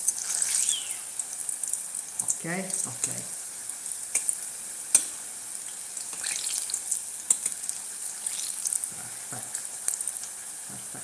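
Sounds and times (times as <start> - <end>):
vegetable slices deep-frying in oil: 0.0 - 11.0
metal tongs clicking against pot: 7.3 - 7.6.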